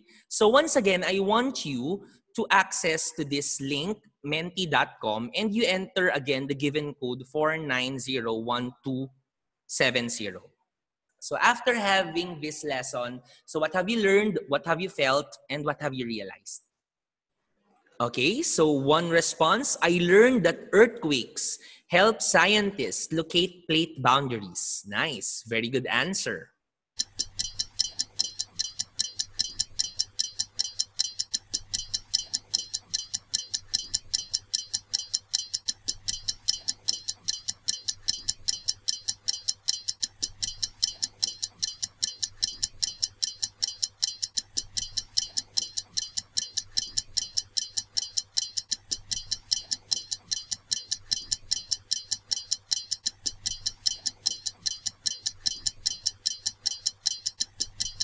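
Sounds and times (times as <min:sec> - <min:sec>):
clock ticking quickly: 0:27.0 - 0:58.0.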